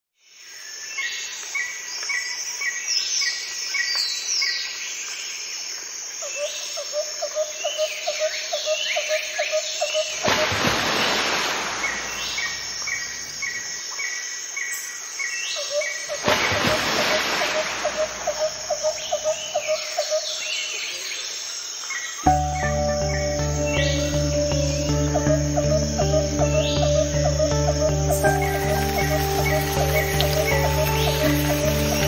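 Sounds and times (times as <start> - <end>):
birds chirping: 7.6 - 32.0.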